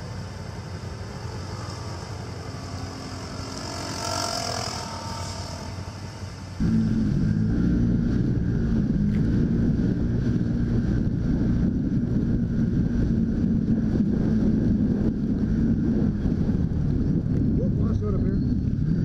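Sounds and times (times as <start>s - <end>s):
utv engine running: 6.6s - 19.0s
wind on microphone: 6.6s - 19.0s.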